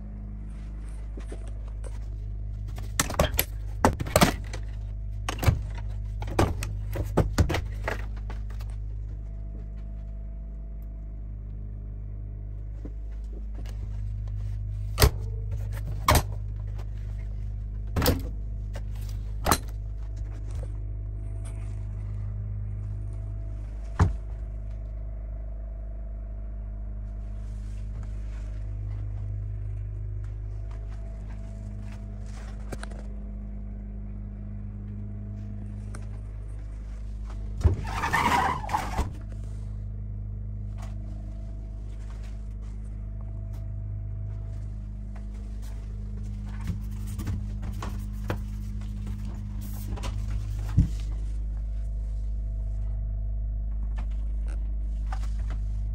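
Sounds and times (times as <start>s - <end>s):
low mechanical hum: 0.0s - 55.9s
refrigerator doors and latches clicking: 2.7s - 8.7s, 14.9s - 16.5s, 17.9s - 19.9s.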